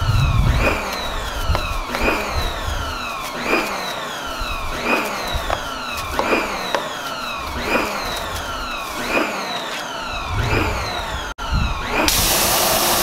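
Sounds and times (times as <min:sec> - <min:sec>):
low bass hits: 0:00.0 - 0:01.9
siren-like synth tone: 0:00.0 - 0:12.4
falling synth sweeps: 0:00.0 - 0:12.9.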